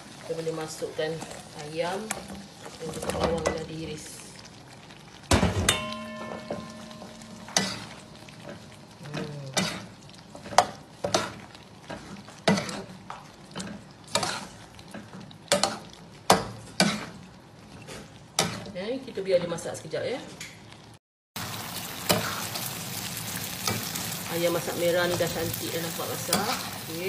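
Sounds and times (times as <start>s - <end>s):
food sizzling in a pan: 0.0s - 18.9s, 21.4s - 27.0s
pan ringing: 5.6s - 9.0s
metal spatula scraping a pan: 6.2s - 8.8s, 13.6s - 14.6s.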